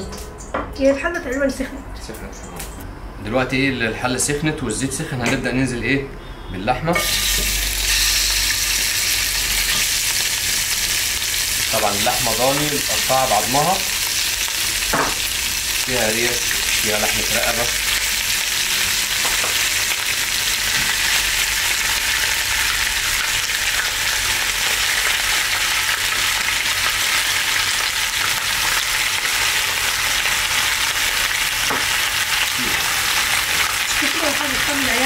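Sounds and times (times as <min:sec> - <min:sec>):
meat sizzling in hot oil: 0:07.0 - 0:35.0.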